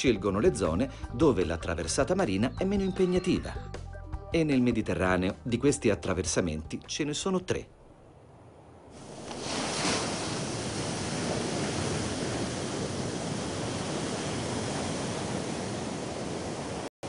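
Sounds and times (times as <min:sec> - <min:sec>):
surf breaking on rocky shore: 0:08.9 - 0:16.9.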